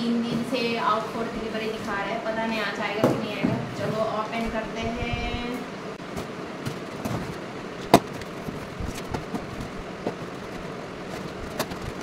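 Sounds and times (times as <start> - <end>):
cardboard rustling: 6.1 - 12.0.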